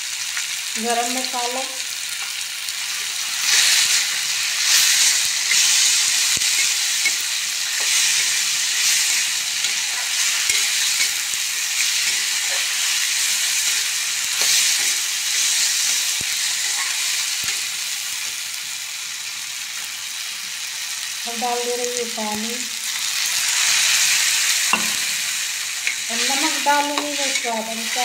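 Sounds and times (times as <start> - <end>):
vegetables sizzling in a metal pan: 0.0 - 28.0
metal spatula scraping a pan: 4.6 - 13.6, 16.6 - 17.2, 25.8 - 28.0.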